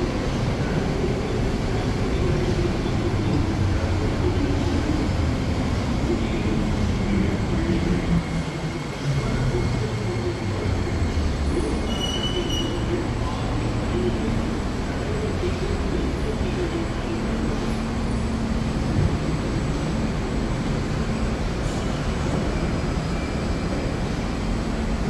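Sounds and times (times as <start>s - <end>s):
metro train slowing to a stop: 0.0s - 25.0s
brake squeal: 11.6s - 13.0s.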